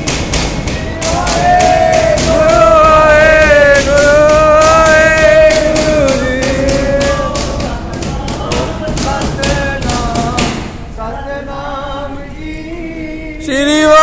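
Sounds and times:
tabla beating a steady rhythm: 0.0 - 10.7.

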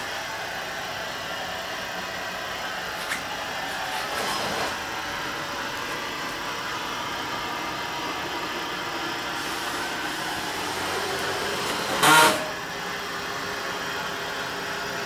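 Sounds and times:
mechanical drone: 9.4 - 12.8.

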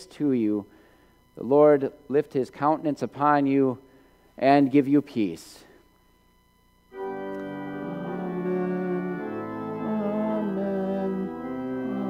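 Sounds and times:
organ playing sustained chords: 6.9 - 12.0.

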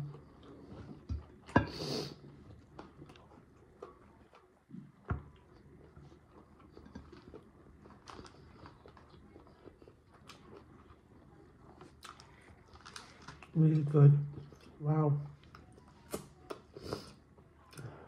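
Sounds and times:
wet chewing and crunching: 2.2 - 18.0.

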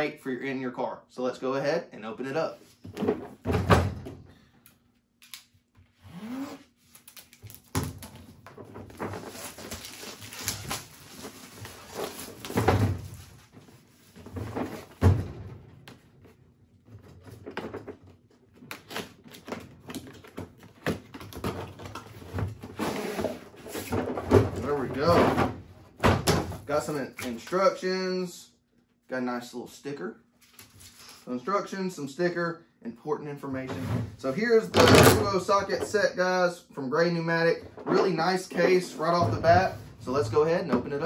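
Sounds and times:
cardboard rustling and scraping: 6.9 - 15.1, 20.0 - 25.6.

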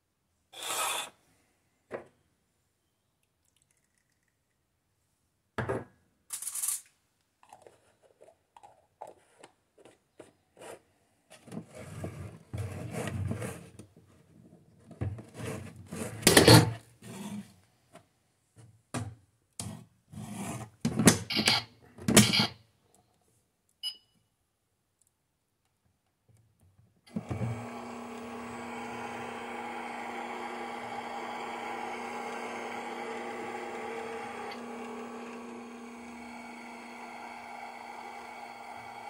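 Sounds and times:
toy microwave running hum: 27.1 - 39.0.

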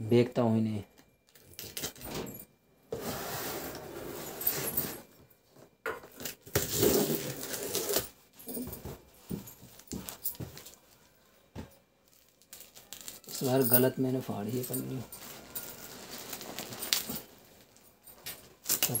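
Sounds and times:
box cutter slitting packing tape: 6.2 - 8.1.

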